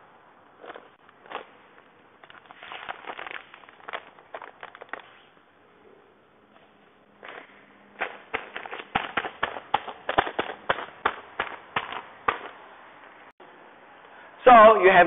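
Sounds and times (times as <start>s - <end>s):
plastic bags crinkling: 0.6s - 5.3s.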